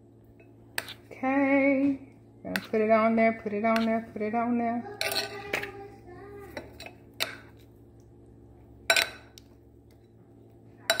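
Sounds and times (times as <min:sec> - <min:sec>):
metal spoon scraping glass bowl: 0:00.7 - 0:01.1, 0:02.5 - 0:02.9, 0:04.9 - 0:05.8.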